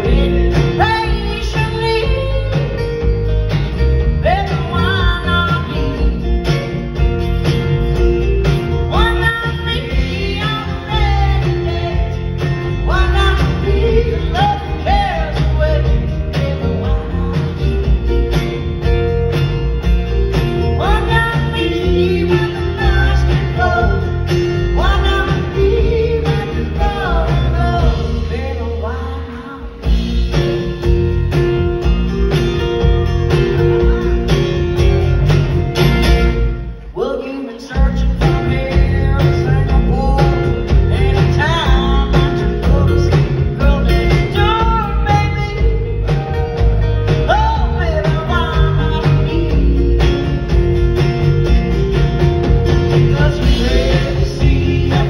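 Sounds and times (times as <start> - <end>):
lead vocals: 0.0 - 3.2, 8.6 - 18.6, 20.4 - 31.1, 36.4 - 50.7, 52.4 - 55.0
live band playing: 0.0 - 55.0.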